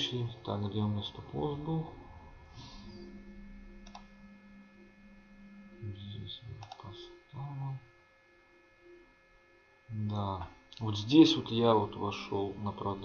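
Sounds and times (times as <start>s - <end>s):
faint electrical whine: 0.0s - 13.0s
computer mouse clicks: 3.8s - 4.1s, 6.6s - 6.9s
man humming in hesitation: 5.7s - 7.9s.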